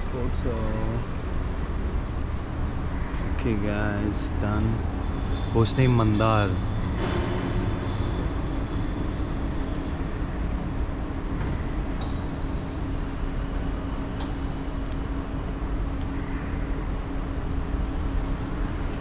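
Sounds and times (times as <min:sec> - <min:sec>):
constant low hum: 0:00.0 - 0:19.0
low background rumble: 0:00.0 - 0:19.0.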